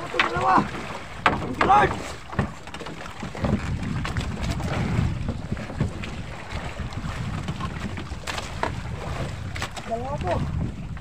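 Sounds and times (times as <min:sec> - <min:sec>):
water splashing along boat hull: 0:00.0 - 0:11.0
wind buffeting microphone: 0:00.0 - 0:11.0
sharp knocks: 0:01.2 - 0:03.6.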